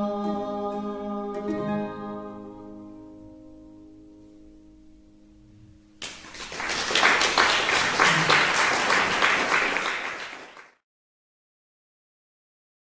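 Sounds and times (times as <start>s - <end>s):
mandolin and guitar chord: 0.0s - 5.9s
audience applause: 6.0s - 10.8s.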